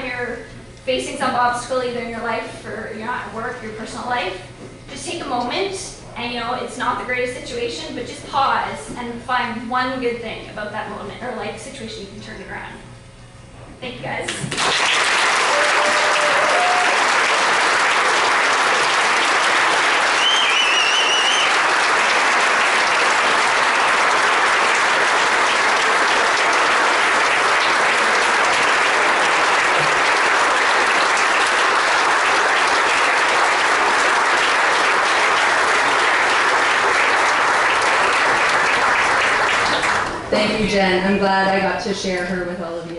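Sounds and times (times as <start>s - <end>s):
large audience applauding: 14.5s - 40.3s
high-pitched cheer or whistle: 15.4s - 17.2s, 20.0s - 21.8s.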